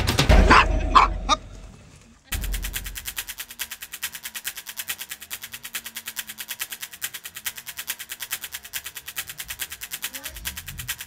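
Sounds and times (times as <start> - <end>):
fast ticking beat: 2.3 - 11.0.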